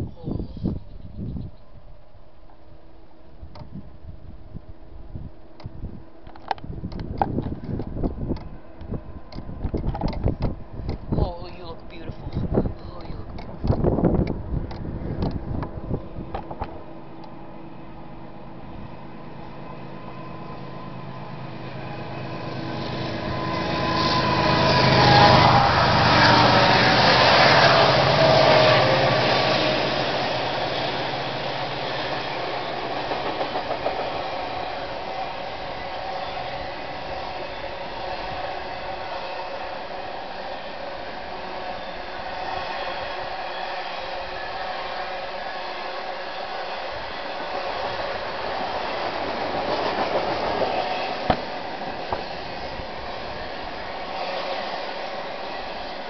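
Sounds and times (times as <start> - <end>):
diesel locomotives passing: 0.0 - 56.0
train wheels rushing on rail: 2.5 - 56.0.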